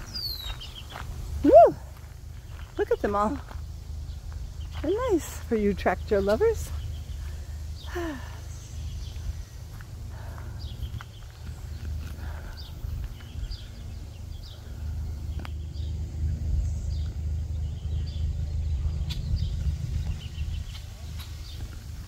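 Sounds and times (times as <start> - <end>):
small birds chirping: 0.0 - 22.0
wind buffeting microphone: 8.6 - 22.0.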